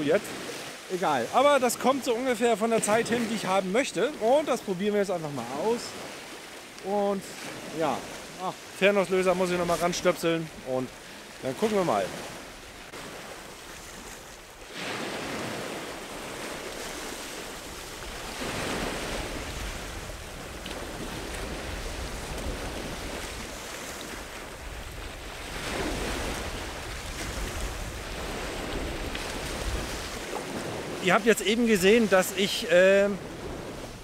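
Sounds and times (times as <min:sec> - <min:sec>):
sea waves breaking against concrete: 0:00.0 - 0:34.0
low wind rumble on microphone: 0:15.4 - 0:31.0.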